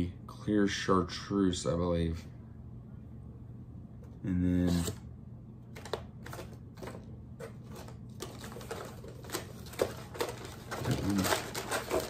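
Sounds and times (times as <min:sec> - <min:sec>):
plastic packaging crinkling: 0:05.8 - 0:12.0.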